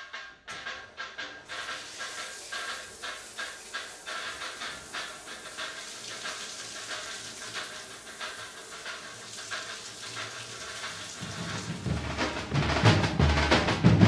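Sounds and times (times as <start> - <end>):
samba drum ensemble: 10.3 - 14.0.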